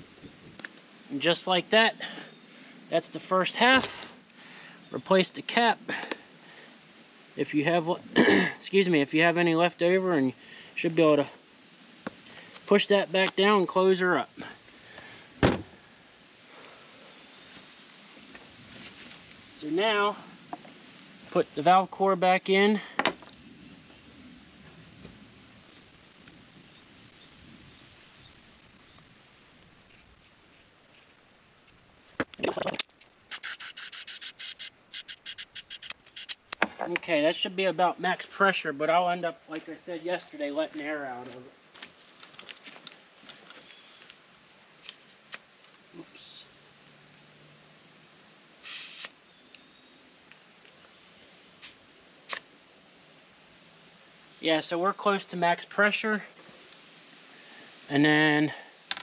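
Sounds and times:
crickets chirping: 0.0 - 59.0
sharp clicks: 32.3 - 36.6
air hissing from tire valve: 33.3 - 36.4, 48.6 - 49.2, 51.6 - 52.4.

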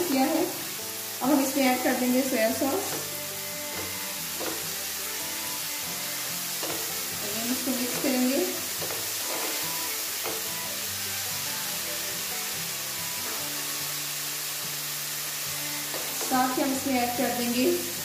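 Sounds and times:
soft background music: 0.0 - 18.0
vegetables sizzling in oil: 0.0 - 18.0
spatula scraping a pan: 2.9 - 10.7.

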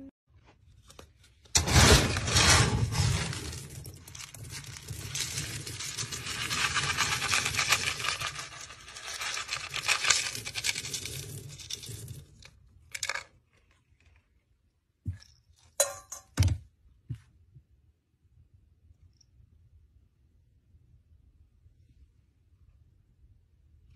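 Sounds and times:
kibble rattling in a scoop: 1.6 - 13.8.

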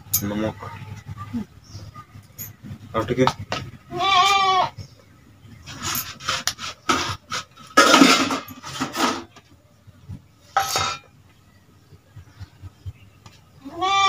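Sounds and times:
hands mixing rice on steel plate: 5.6 - 9.2.

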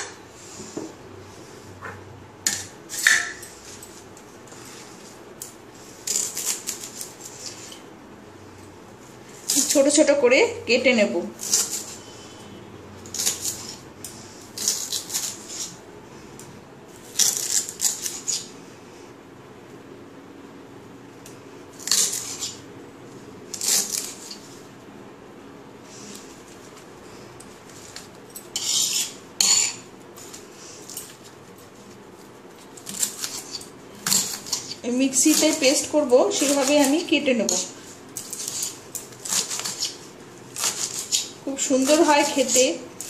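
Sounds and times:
knife slicing leaves: 6.0 - 7.8, 9.4 - 10.0, 11.3 - 12.1, 13.0 - 15.8, 17.0 - 18.5, 21.8 - 22.6, 23.5 - 24.5, 27.6 - 31.2, 32.1 - 43.0.

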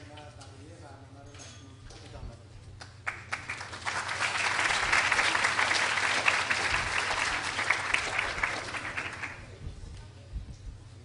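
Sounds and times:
audience applauding: 2.8 - 9.6.

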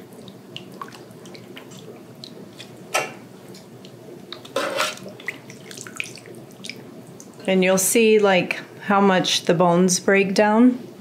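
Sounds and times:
broth splashing: 0.0 - 7.5
broth dripping: 0.0 - 8.3.

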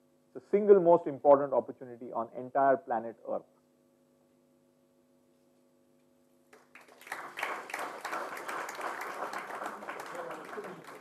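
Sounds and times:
faint electrical hum: 0.0 - 11.0
audience applauding: 6.6 - 11.0.

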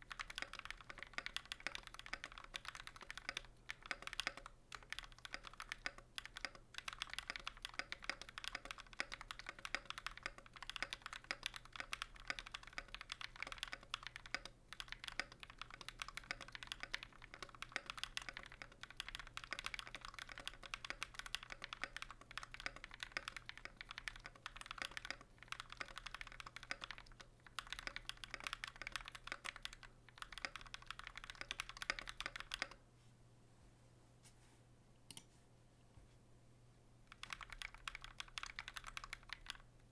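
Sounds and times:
typing on mechanical keyboard: 0.0 - 32.8, 37.1 - 39.9.

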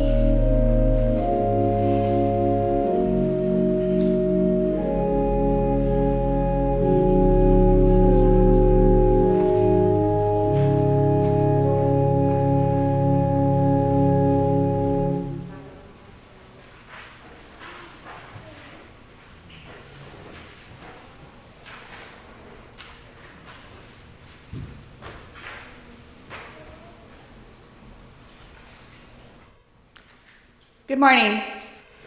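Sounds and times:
church organ playing chords: 0.0 - 16.0.

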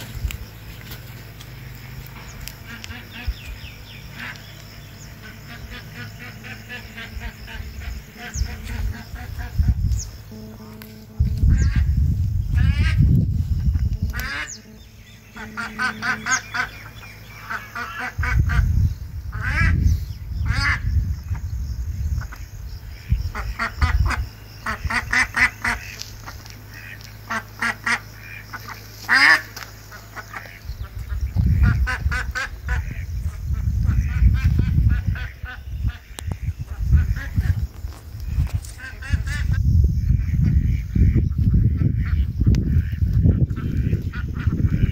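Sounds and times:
ducks calling: 0.0 - 44.9
low rumble: 30.6 - 44.9.

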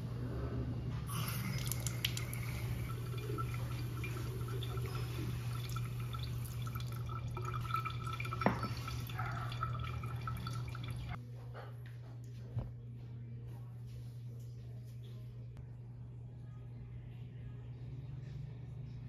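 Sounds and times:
water dripping into steel sink: 1.2 - 11.2.

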